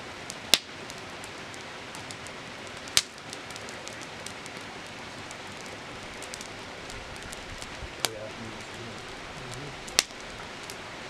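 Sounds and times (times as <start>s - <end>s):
campfire crackling: 0.0s - 11.0s.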